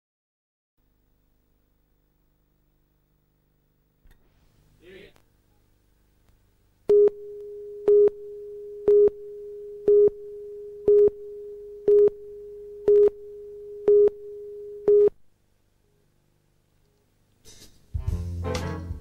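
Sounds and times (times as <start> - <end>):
countdown beeps: 6.9 - 15.1
steady mid-pitched tone: 6.9 - 15.1.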